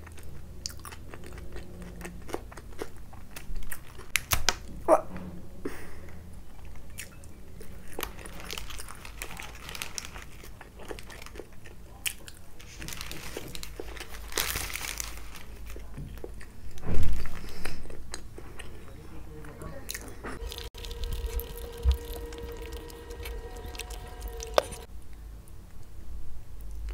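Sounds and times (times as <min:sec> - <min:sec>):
biting and chewing food: 0:00.0 - 0:04.7, 0:06.5 - 0:18.9, 0:19.9 - 0:24.9
paper wrapper crinkling: 0:08.0 - 0:11.3, 0:12.6 - 0:15.9, 0:20.4 - 0:24.9.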